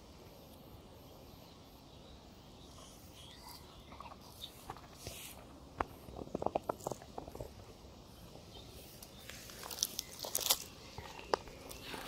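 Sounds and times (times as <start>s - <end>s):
dry leaves crunching underfoot: 8.9s - 12.0s.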